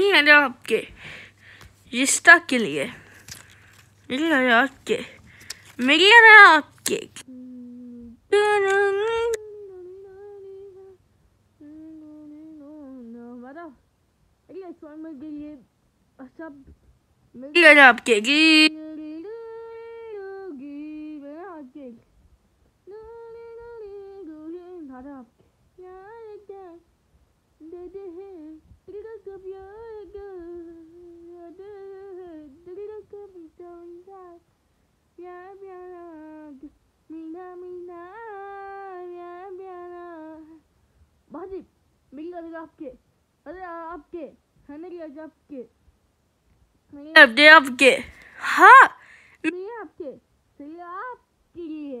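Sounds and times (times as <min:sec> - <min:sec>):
person humming held notes: 0:06.9 - 0:11.0.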